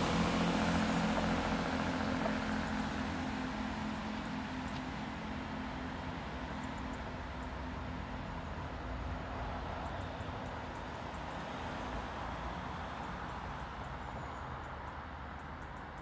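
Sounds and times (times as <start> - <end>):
train rumbling away: 0.0 - 11.4.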